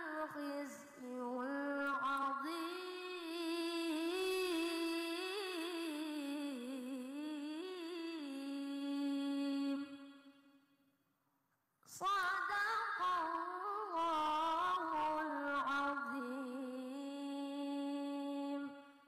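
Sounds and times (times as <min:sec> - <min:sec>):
boy reciting melodically: 0:00.0 - 0:10.0, 0:11.9 - 0:18.8.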